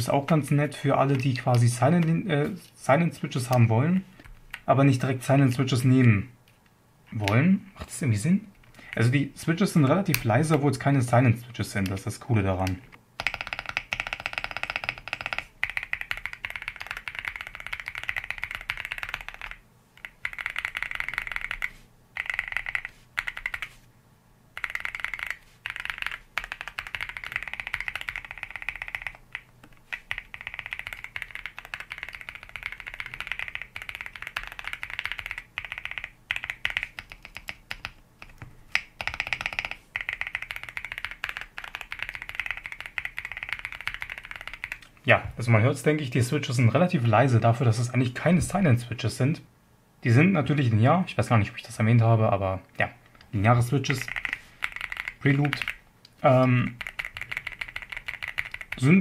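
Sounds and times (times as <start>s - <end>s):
mechanical keyboard typing: 1.0s - 2.2s, 12.6s - 23.8s, 24.6s - 44.9s, 53.8s - 59.0s.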